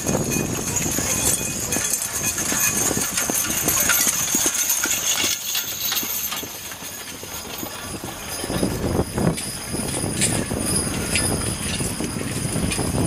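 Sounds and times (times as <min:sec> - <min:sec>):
horse hoofbeats on dirt: 0:00.0 - 0:13.0.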